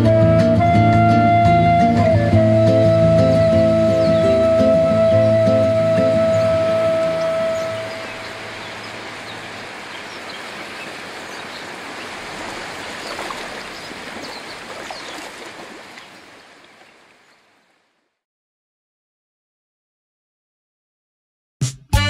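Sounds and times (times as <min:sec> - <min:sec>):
surf washing over rocks: 0:03.5 - 0:17.6.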